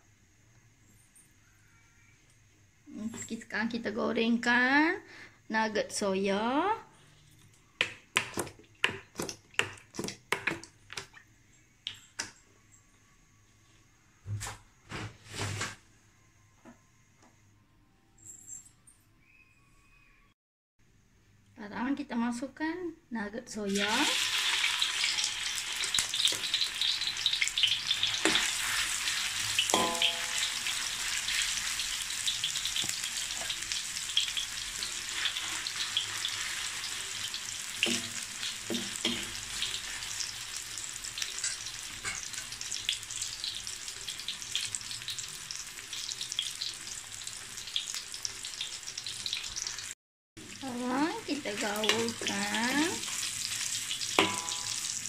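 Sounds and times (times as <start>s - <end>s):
food sizzling in hot oil: 23.6s - 55.0s.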